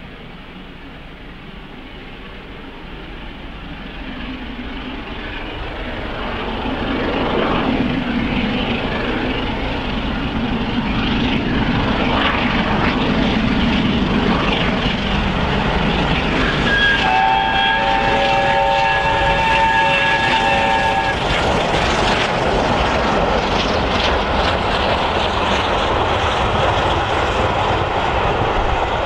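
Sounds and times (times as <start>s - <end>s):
steam locomotive working hard: 0.0s - 29.0s
steam whistle: 16.4s - 21.4s.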